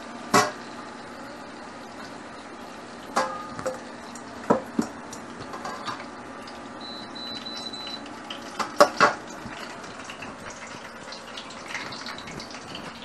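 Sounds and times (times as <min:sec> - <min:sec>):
cooktop beeps: 0:05.8 - 0:09.2
faint clatter at sink: 0:08.4 - 0:13.0.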